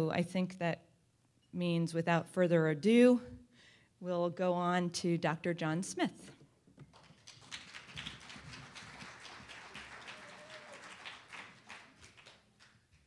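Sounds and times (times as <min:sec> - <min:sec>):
audience applause: 0:07.0 - 0:12.9.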